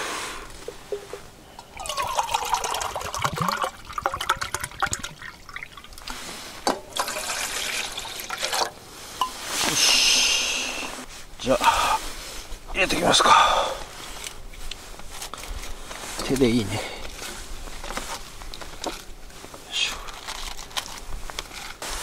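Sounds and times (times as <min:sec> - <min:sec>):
water pouring and splashing: 0:00.7 - 0:09.8.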